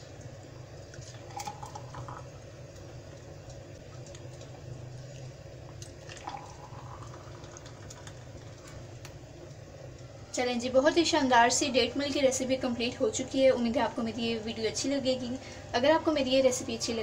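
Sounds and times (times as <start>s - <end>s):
thick liquid pouring into glasses: 0.9s - 2.5s, 4.0s - 8.7s.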